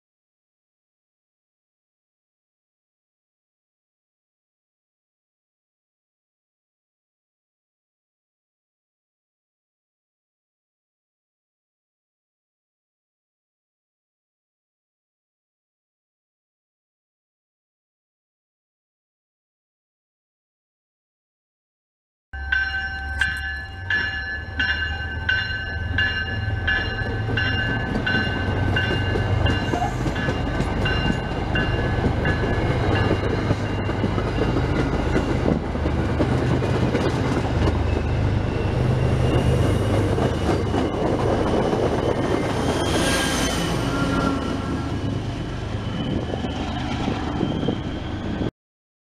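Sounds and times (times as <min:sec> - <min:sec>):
brief high-pitched tone: 0:22.4 - 0:26.2
bell ringing: 0:22.4 - 0:35.4
train rumbling past: 0:22.4 - 0:48.5.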